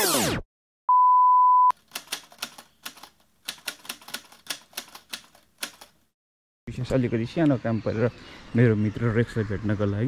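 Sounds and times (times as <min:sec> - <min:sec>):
high single-tone beep: 0:00.9 - 0:01.7.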